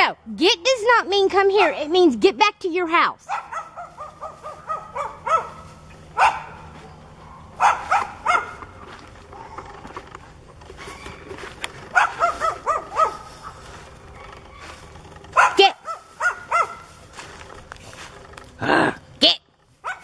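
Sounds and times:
dog barking: 3.3s - 8.7s, 11.9s - 14.7s, 15.3s - 17.0s.

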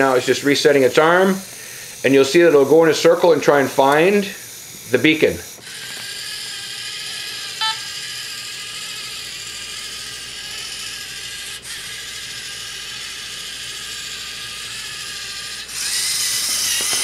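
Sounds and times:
robot motors and gears whirring: 0.0s - 17.0s
pitched beep: 7.6s - 7.8s.

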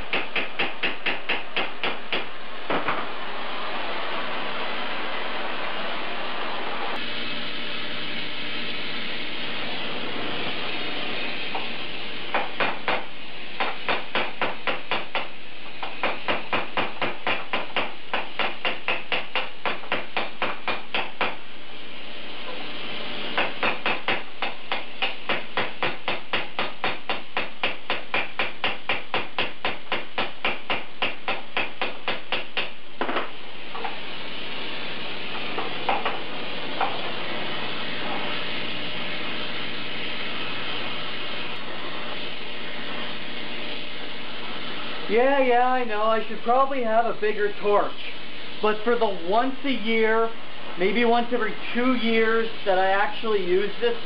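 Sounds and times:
gas torch flame hissing: 0.0s - 54.0s.

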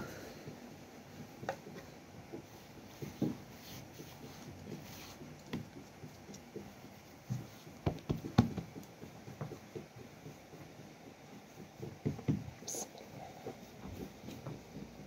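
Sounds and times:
hands patting dough: 0.0s - 15.0s.

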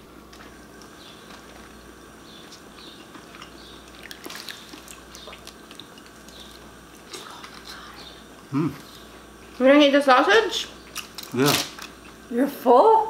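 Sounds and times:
steady low hum: 0.0s - 13.0s
chewing: 0.3s - 9.6s.

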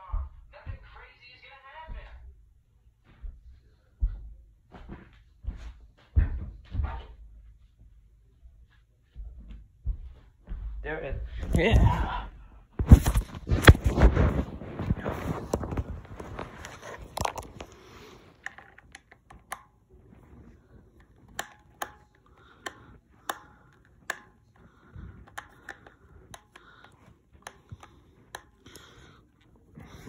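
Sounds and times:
rustling handling noise: 12.8s - 30.0s
plastic clicks and taps: 15.5s - 30.0s.

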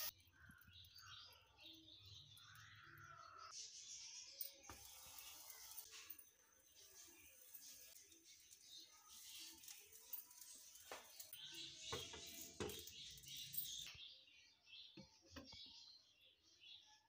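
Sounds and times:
food sizzling in frying pan: 4.7s - 6.0s, 6.7s - 11.3s.

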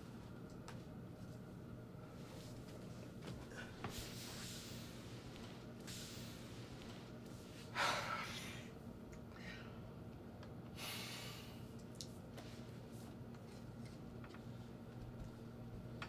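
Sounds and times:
low room hum: 0.0s - 16.0s
person exhaling hard: 10.8s - 11.6s.

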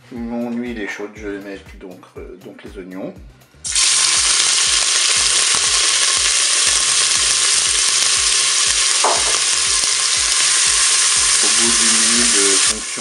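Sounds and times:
onions sizzling in oil: 3.7s - 13.0s.

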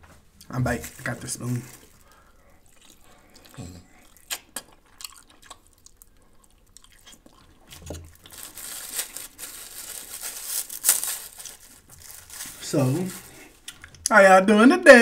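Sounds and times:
soft chewing: 0.2s - 10.1s, 11.4s - 14.1s
cellophane wrapper crinkling: 0.6s - 3.1s, 5.2s - 14.0s
wet mouth clicks: 2.7s - 7.5s.

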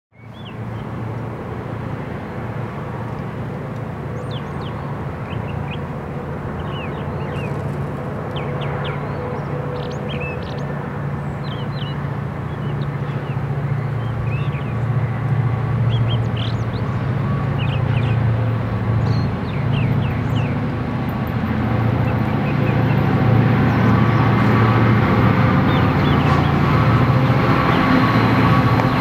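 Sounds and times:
distant diesel locomotives rumbling: 0.2s - 29.0s
small birds chirping: 15.9s - 18.2s.

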